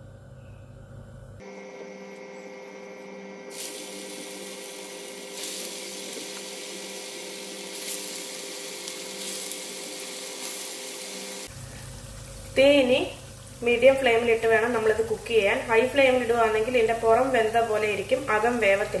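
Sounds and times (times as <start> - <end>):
low hum: 0.0 - 9.8
food sizzling in hot oil: 3.5 - 19.0.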